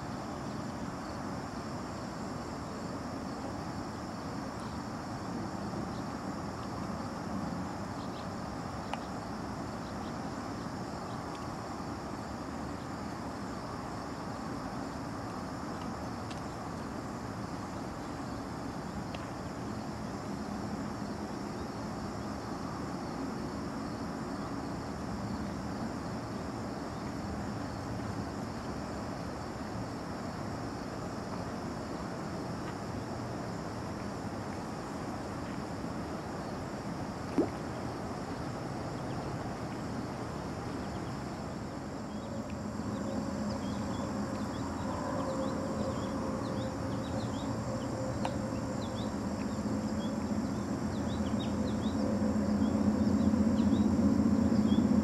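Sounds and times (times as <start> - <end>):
low outdoor rumble: 39.3 - 55.0.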